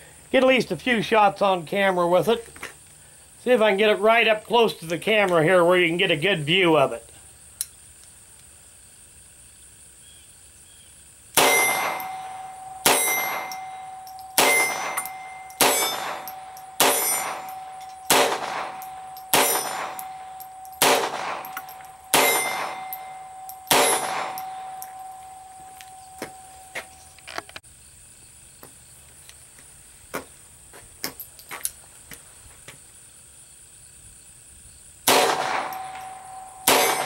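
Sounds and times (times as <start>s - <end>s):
pistol shots: 11.4s - 25.0s, 35.1s - 37.0s.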